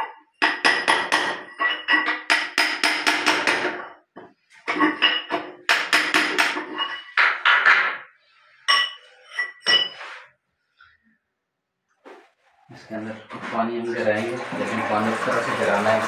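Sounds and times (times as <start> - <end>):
hammer striking steel chisel: 0.4 - 3.9, 5.3 - 8.0.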